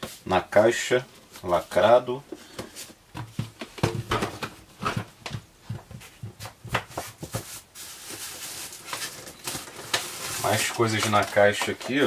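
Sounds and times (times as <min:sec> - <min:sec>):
knocks and taps on cardboard box: 0:03.2 - 0:07.5
packaging rustling: 0:07.0 - 0:12.0.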